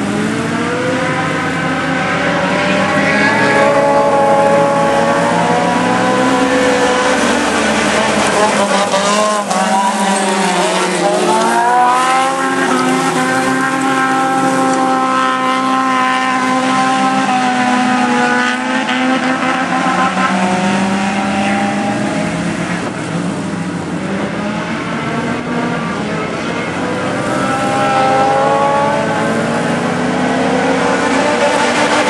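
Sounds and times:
race car engines at high revs: 0.0 - 32.0.

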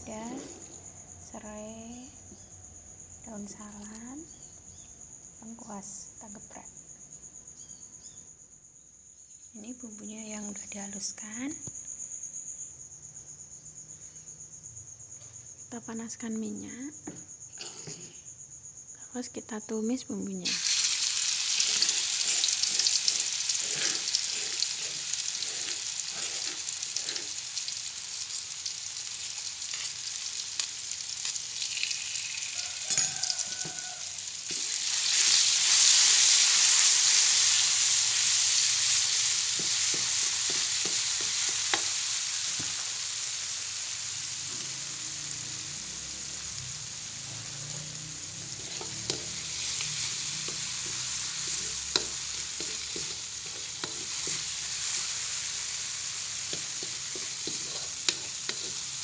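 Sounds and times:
spice paste sizzling in oil: 3.3 - 4.9, 12.3 - 18.9, 19.8 - 59.0
spatula scraping a pan: 20.5 - 28.3, 29.6 - 31.9, 32.8 - 42.8, 47.6 - 59.0.

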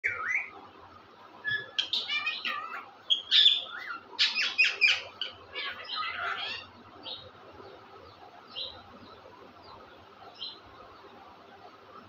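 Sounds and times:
parakeets chirping and squawking: 0.0 - 0.6, 1.5 - 7.4.

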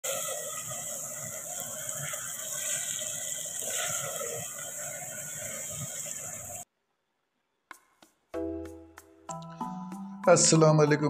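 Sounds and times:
food sizzling in a pot: 0.0 - 6.7.

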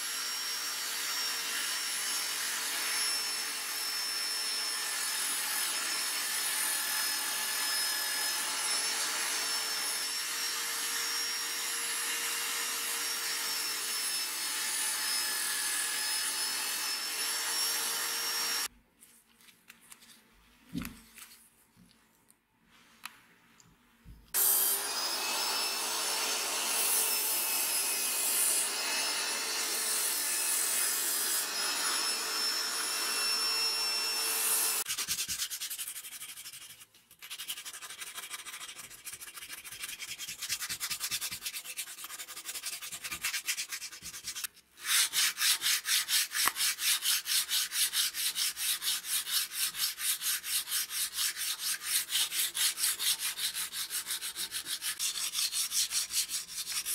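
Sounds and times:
file rasping wood: 24.4 - 56.9
sandpaper rubbing wood: 34.4 - 56.9.

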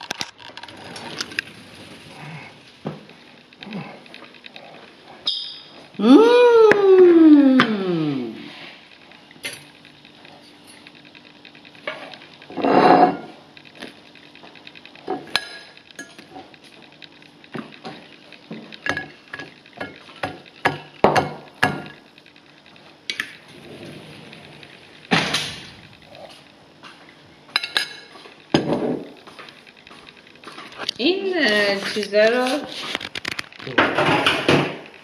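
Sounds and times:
fork scraping ceramic plate: 12.5 - 13.3.

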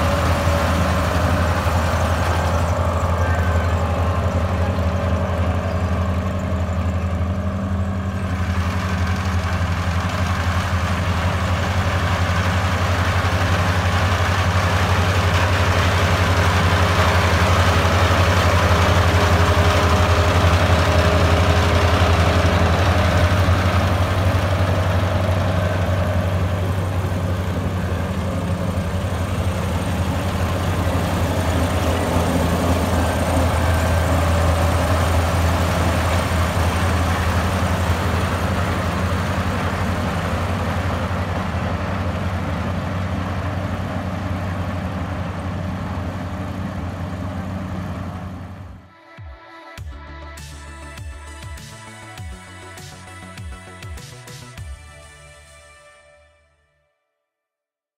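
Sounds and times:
harvesting machinery rush: 0.0 - 48.8
diesel engine droning: 0.0 - 48.9.

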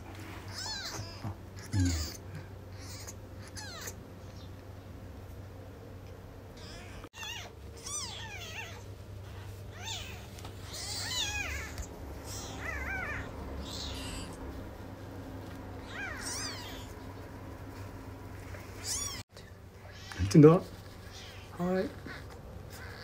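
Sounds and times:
kittens mewing: 0.5 - 4.5, 6.6 - 8.9, 9.6 - 14.6, 15.8 - 17.2, 18.6 - 19.2, 19.8 - 23.0.

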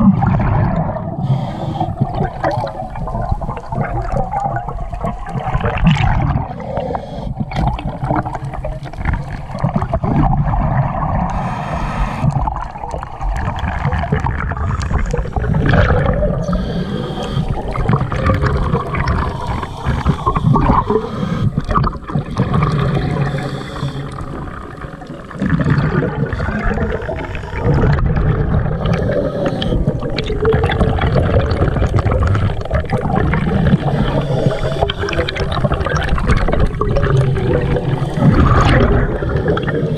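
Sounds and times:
exhaled bubbles gurgling underwater: 0.0 - 39.9
regulator hiss on inhale: 1.2 - 2.1, 11.3 - 12.4, 16.4 - 17.8, 19.2 - 24.5, 28.8 - 30.1, 33.8 - 35.4.

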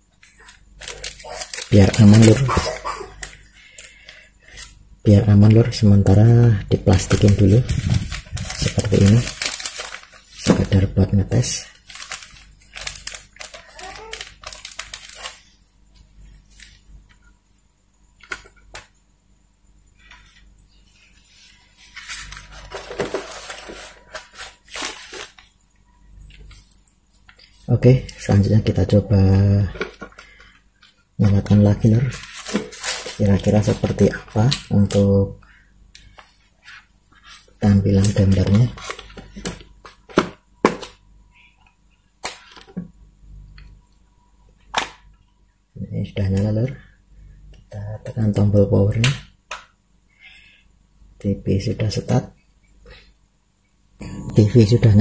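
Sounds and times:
plastic bag crinkling: 0.8 - 4.0, 6.8 - 15.5, 21.9 - 25.6, 31.8 - 34.9.

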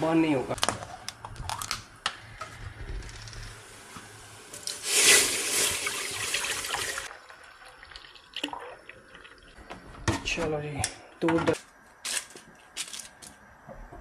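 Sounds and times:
milk pouring into steel pot: 4.9 - 9.5.

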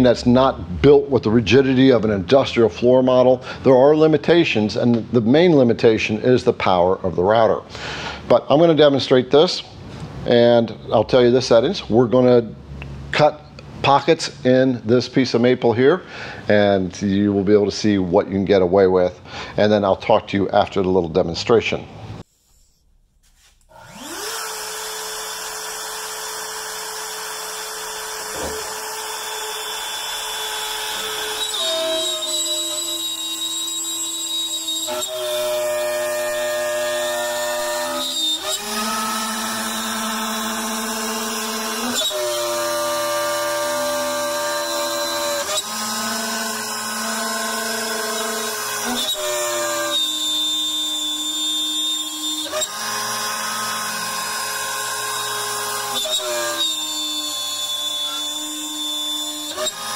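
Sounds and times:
router cutting wood: 23.7 - 59.9
router spinning up: 23.7 - 59.9.

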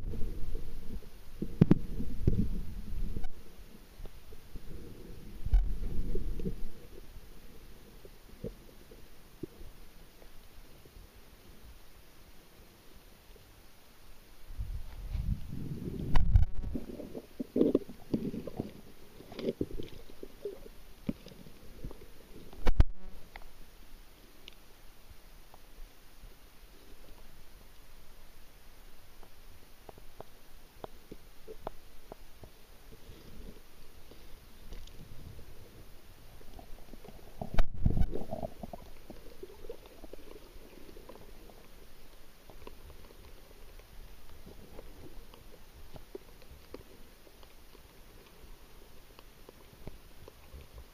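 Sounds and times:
muffled underwater rumbling: 0.0 - 9.9, 14.5 - 23.4, 33.0 - 48.8.

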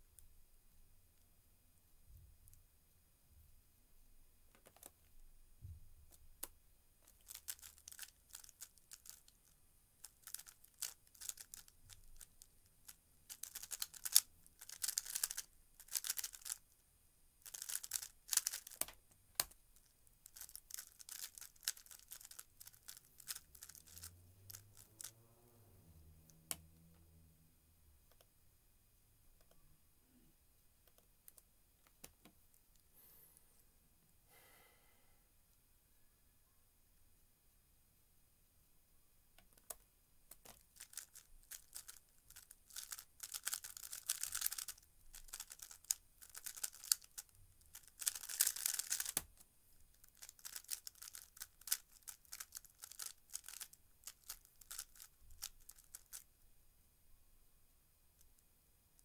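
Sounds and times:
plastic puzzle cube clicking: 7.1 - 16.6, 17.4 - 19.6, 20.2 - 25.1, 39.4 - 49.4, 50.0 - 56.2.

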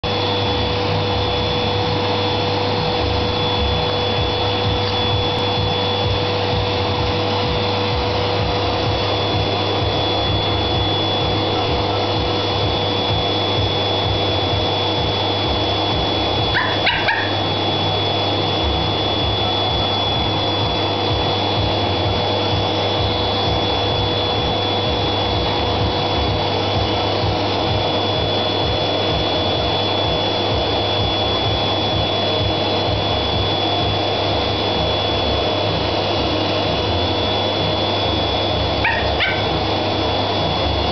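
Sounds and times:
vacuum cleaner running: 0.0 - 40.9
dog yipping: 16.5 - 17.5, 38.8 - 39.6.

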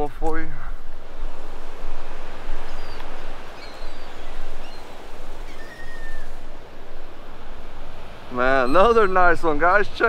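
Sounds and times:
surf on a beach: 0.0 - 10.0
wind: 0.0 - 10.0
faint high bird chirps: 2.6 - 6.4, 8.5 - 9.4.

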